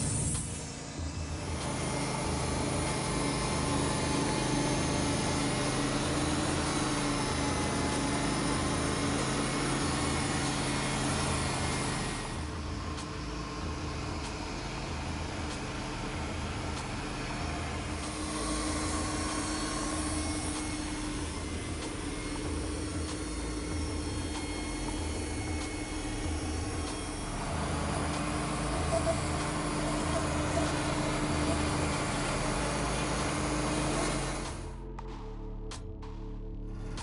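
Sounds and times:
sawmill engine running: 0.0s - 35.0s
tractor diesel engine running: 0.0s - 35.0s
saw blade cutting log: 1.5s - 12.4s, 17.8s - 34.8s.

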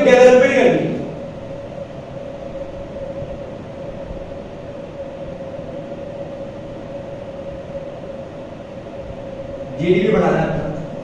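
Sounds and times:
constant mid-pitched tone: 0.0s - 11.0s
room hum: 0.0s - 11.0s.

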